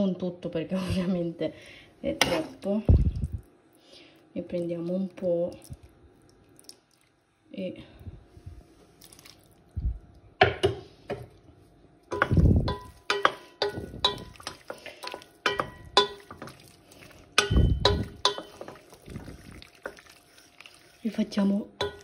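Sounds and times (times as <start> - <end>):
pot ringing: 12.1 - 16.4, 17.4 - 18.7, 21.8 - 22.0
wooden spoon scraping a pot: 12.1 - 22.0.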